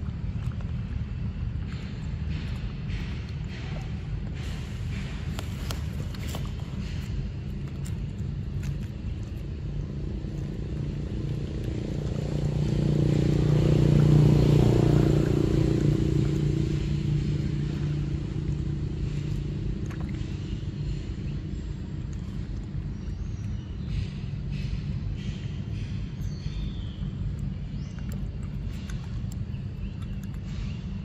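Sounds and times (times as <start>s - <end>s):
vehicle passing by: 8.6s - 23.1s.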